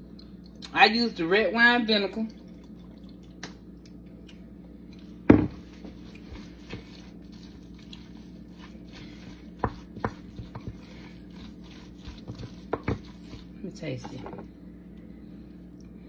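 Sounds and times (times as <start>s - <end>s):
wooden spoon mashing in glass bowl: 5.4s - 14.5s.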